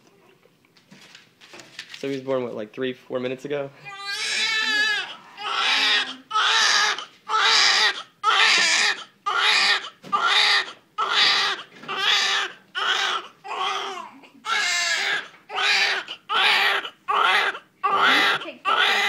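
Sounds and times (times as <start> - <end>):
newborn baby crying: 3.8 - 19.0.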